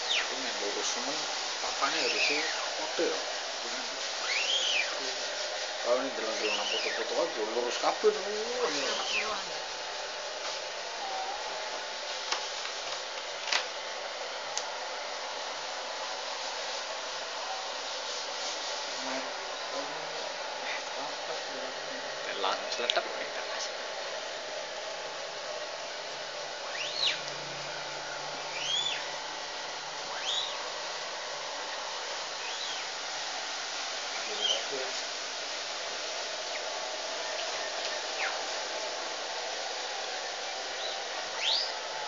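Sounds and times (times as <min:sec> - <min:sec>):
electric air blower running: 0:00.0 - 0:42.0
rising and falling chirp: 0:04.2 - 0:05.0, 0:06.4 - 0:07.2, 0:26.6 - 0:29.2, 0:30.1 - 0:30.7.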